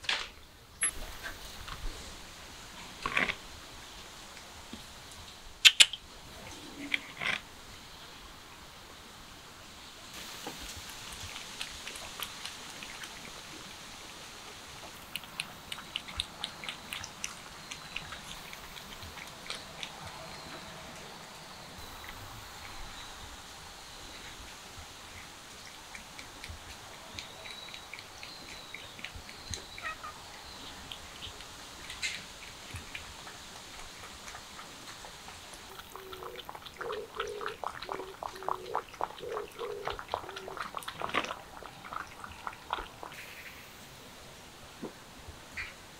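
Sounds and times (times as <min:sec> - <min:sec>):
steady background hiss: 0:00.0 - 0:45.9
cats lapping liquid: 0:10.6 - 0:21.0, 0:25.5 - 0:43.3.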